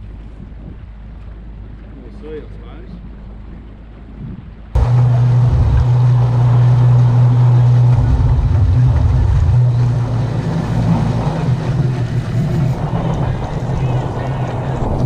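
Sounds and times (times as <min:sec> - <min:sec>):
outboard motor running: 0:02.9 - 0:15.0.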